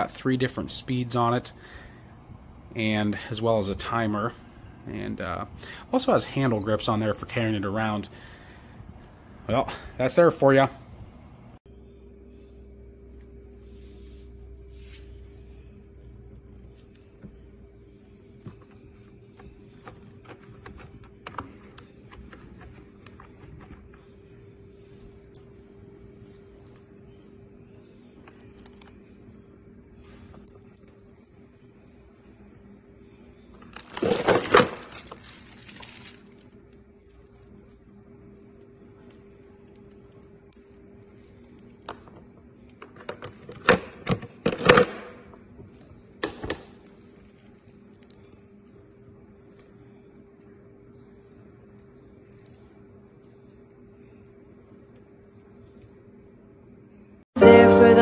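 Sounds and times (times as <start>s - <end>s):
faint steady hum: 0.0s - 43.4s
plastic wrapping rustling: 33.6s - 36.5s.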